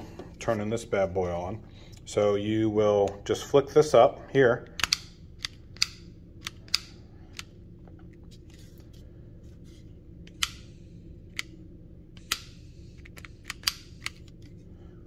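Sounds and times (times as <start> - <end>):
soldering iron ignition clicks: 4.7 - 7.5, 10.2 - 10.7, 11.3 - 14.2.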